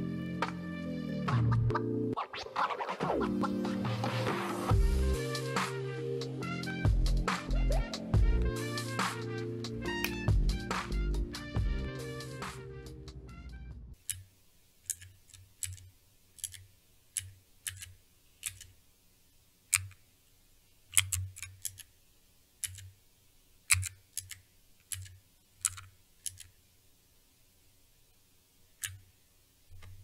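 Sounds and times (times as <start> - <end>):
keyboard keys clicking: 14.9 - 16.6, 22.6 - 22.9, 23.7 - 26.5.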